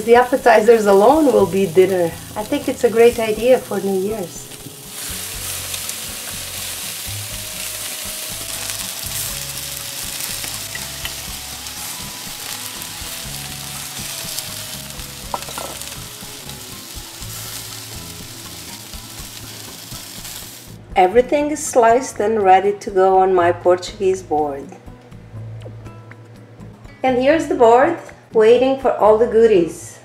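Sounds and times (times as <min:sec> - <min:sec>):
sausages sizzling on grill: 0:00.0 - 0:20.8
soft background music: 0:00.0 - 0:30.0.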